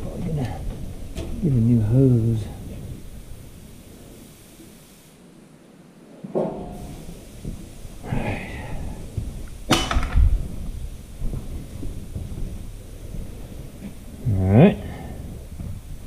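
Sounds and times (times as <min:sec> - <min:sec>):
hand tools knocking and clattering: 0:09.2 - 0:10.5.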